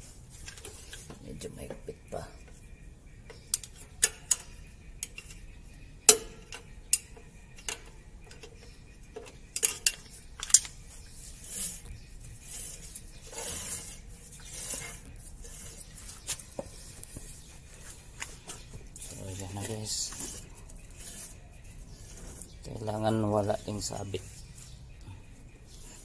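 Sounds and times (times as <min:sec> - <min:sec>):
brake drum scraping: 0:06.1 - 0:24.8.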